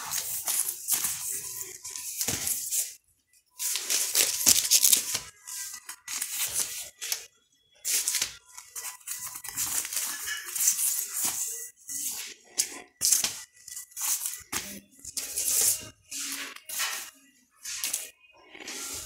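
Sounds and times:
record sleeves rustling: 0.0 - 3.0, 3.6 - 7.2, 7.9 - 12.4.

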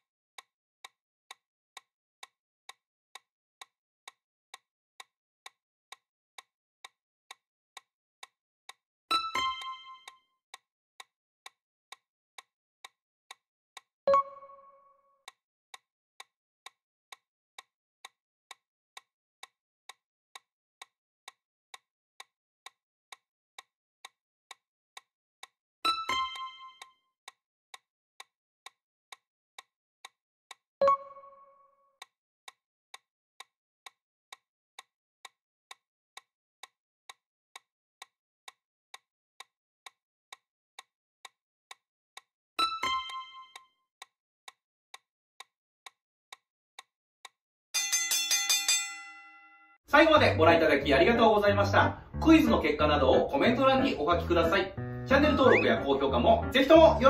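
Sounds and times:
timer ticking: 8.7 - 12.0, 13.8 - 15.8, 25.9 - 26.9, 30.0 - 32.1, 42.2 - 43.6, 49.9 - 57.0.

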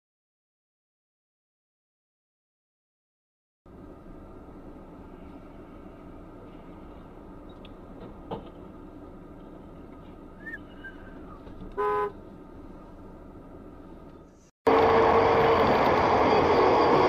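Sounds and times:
low hum of driving noise: 3.7 - 14.5
vehicle horn toot: 11.7 - 12.2.

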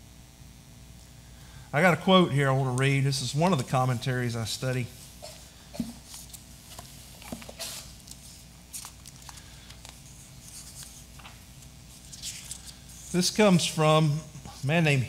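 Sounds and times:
steady low hum: 0.0 - 15.0
book pages turning: 5.0 - 13.5.

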